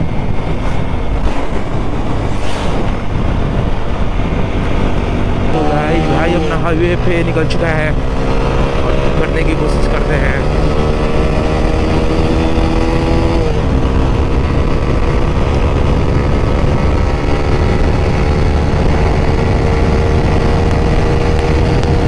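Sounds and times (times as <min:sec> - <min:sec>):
motorcycle engine running: 0:00.0 - 0:22.0
wind rush: 0:00.0 - 0:22.0.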